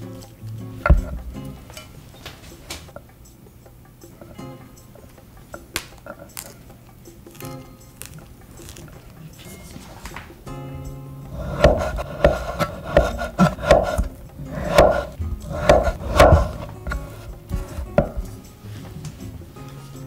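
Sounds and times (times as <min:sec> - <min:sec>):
light background music: 0:00.0 - 0:20.0
knife slicing on cutting board: 0:11.4 - 0:18.3.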